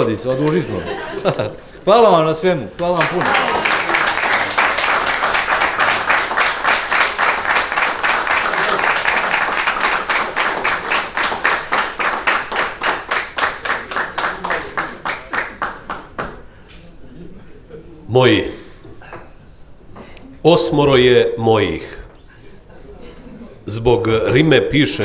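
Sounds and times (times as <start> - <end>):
audience applauding: 2.8 - 16.4.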